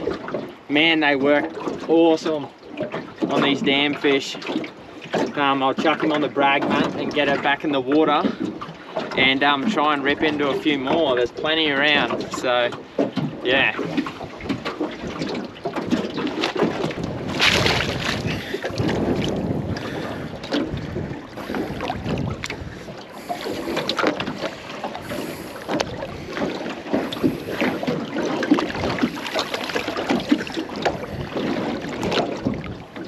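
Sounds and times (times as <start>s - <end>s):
water and air noise: 0.0s - 33.0s
fish knocking on boat: 11.8s - 33.0s.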